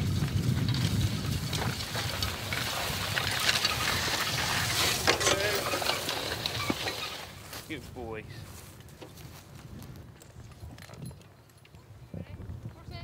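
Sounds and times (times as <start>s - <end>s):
plough scraping soil and straw: 0.0s - 7.8s.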